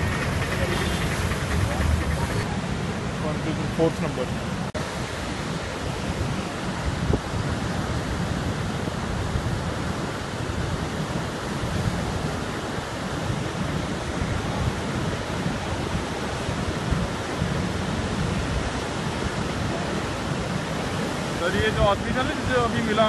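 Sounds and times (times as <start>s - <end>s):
flooded river rushing: 0.0s - 23.0s.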